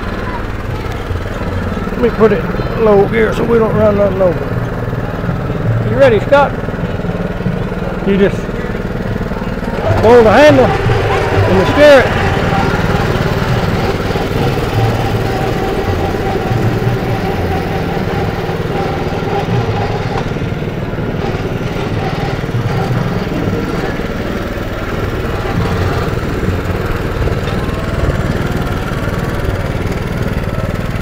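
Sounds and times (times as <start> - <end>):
riding mower engine running: 0.0 - 31.0.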